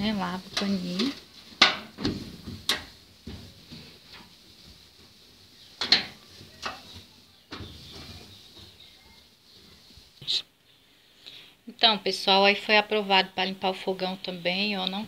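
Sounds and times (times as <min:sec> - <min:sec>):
cloth rubbing on stove top: 0:00.0 - 0:10.4.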